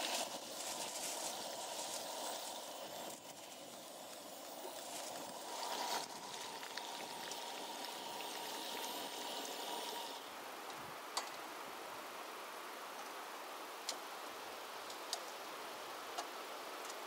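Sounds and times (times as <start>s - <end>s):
food sizzling in a frying pan: 0.0s - 10.4s.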